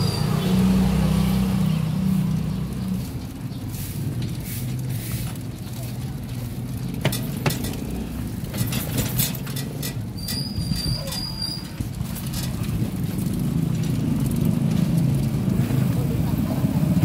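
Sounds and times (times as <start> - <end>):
low vehicle hum: 0.0 - 10.9.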